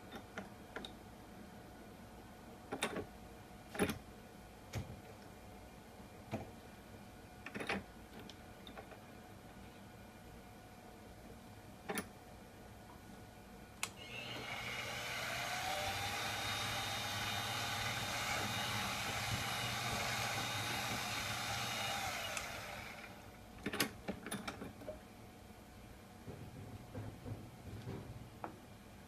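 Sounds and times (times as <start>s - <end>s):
drill bit boring through plastic: 14.0s - 23.2s
milling machine motor running: 14.0s - 23.4s
sharp clicks and knocks: 23.6s - 25.0s, 26.2s - 28.6s.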